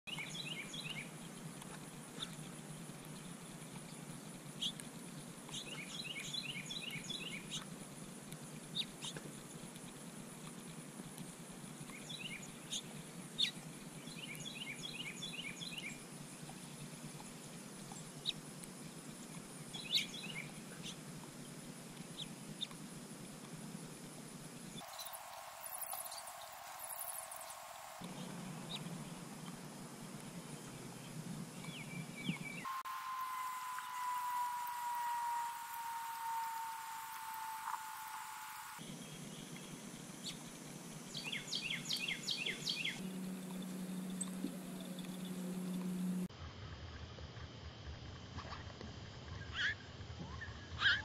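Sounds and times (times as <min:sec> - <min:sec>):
songbirds chirping: 0:00.1 - 0:01.2, 0:05.5 - 0:07.7, 0:11.8 - 0:18.4, 0:24.6 - 0:40.5, 0:41.1 - 0:46.3
low background hum: 0:00.1 - 0:50.9.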